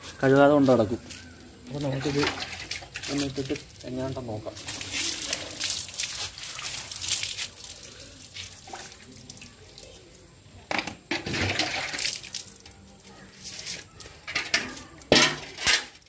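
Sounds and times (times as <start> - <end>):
water spraying on motorcycle: 1.7 - 10.3, 11.3 - 13.9.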